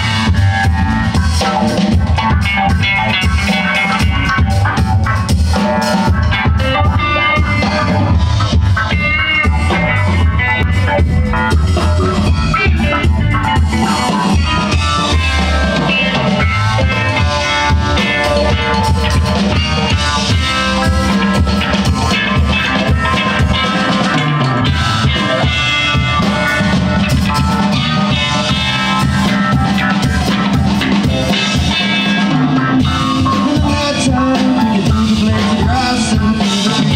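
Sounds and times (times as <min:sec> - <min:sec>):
bass: 0:00.0 - 0:36.9
drum kit beat: 0:00.0 - 0:36.9
electric guitar: 0:00.0 - 0:36.9
keyboards: 0:00.0 - 0:36.9.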